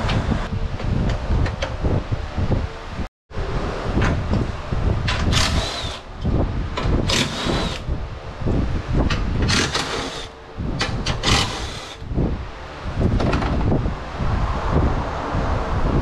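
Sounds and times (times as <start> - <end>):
low rumble: 0.0 - 16.0
cordless drill motor whine: 5.3 - 6.2, 7.0 - 7.9, 9.5 - 10.4, 11.2 - 12.1.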